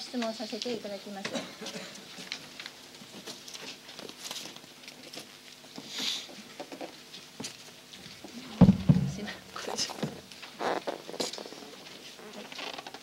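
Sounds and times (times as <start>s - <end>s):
paper boards rustling: 2.1s - 13.0s
light knocks of panels: 8.6s - 10.2s.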